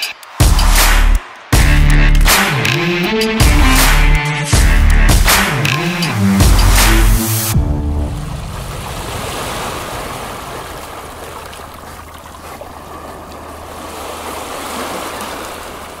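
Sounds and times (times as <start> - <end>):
electronic music: 0.0 - 8.2
sea waves washing: 6.2 - 16.0.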